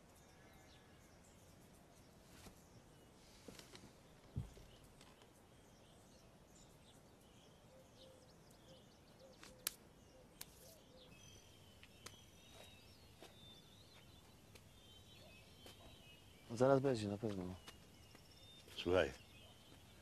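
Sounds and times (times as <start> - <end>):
faint bird chirps: 0.0 - 20.0
dull low thump: 4.3 - 4.7.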